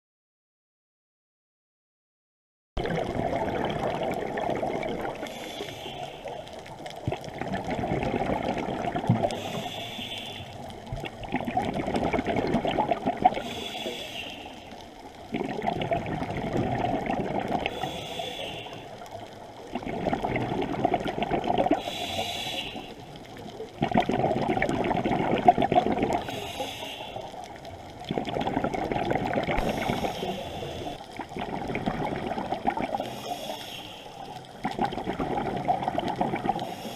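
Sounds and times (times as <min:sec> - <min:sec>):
exhaust bubbles rushing: 0:02.8 - 0:05.2, 0:07.1 - 0:09.3, 0:11.2 - 0:13.4, 0:15.3 - 0:17.7, 0:19.7 - 0:21.8, 0:23.8 - 0:26.2, 0:28.1 - 0:29.7, 0:31.4 - 0:33.0, 0:34.7 - 0:36.6
regulator inhale hiss: 0:05.2 - 0:06.7, 0:09.2 - 0:10.7, 0:13.4 - 0:14.9, 0:17.6 - 0:19.3, 0:21.8 - 0:23.3, 0:26.2 - 0:27.6, 0:29.6 - 0:31.1, 0:33.0 - 0:34.6, 0:36.6 - 0:36.9.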